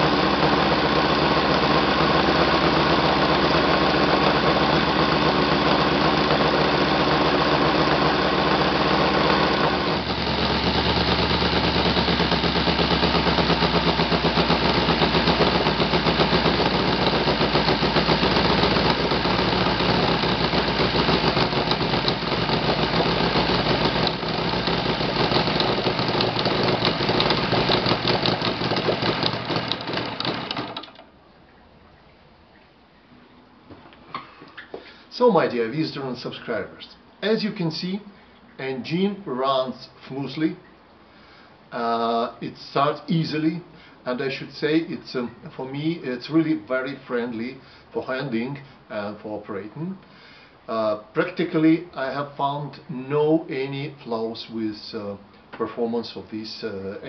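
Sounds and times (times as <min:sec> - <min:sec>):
model airplane engine running: 0:00.0 - 0:31.0.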